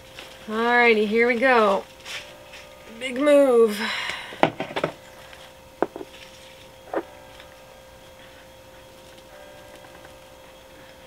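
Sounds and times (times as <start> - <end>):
faint steady hum: 0.0 - 11.0
knocks and rustles of plastic pot: 4.4 - 5.0, 5.8 - 6.3.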